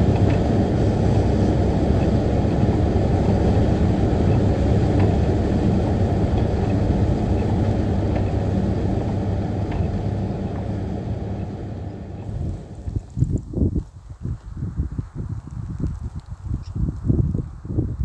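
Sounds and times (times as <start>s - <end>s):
car interior road and engine noise: 0.0s - 13.5s.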